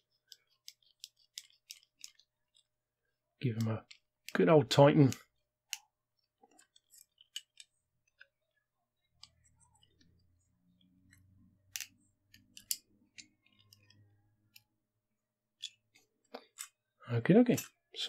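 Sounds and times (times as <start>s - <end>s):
metal parts clicking and scraping: 0.1s - 2.7s, 6.4s - 8.2s, 11.0s - 14.7s, 15.6s - 16.8s.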